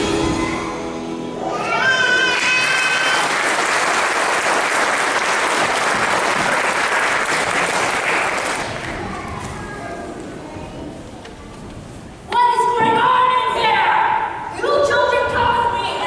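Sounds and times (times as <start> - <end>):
audience applauding: 2.2 - 9.2.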